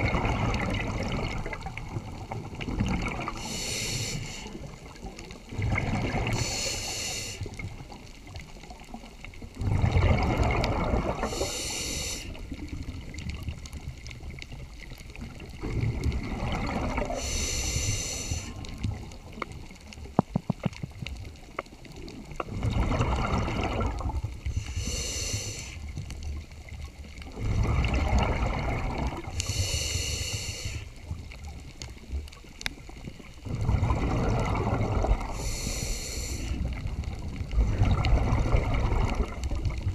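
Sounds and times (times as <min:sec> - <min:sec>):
exhaled bubbles rushing: 0:00.0 - 0:03.6, 0:04.4 - 0:06.7, 0:07.6 - 0:19.7, 0:20.9 - 0:24.7, 0:25.8 - 0:29.5, 0:31.0 - 0:39.9
diver breathing through regulator: 0:03.3 - 0:04.7, 0:06.2 - 0:07.6, 0:11.1 - 0:12.5, 0:16.9 - 0:18.7, 0:24.4 - 0:26.0, 0:29.2 - 0:31.0, 0:35.2 - 0:36.8.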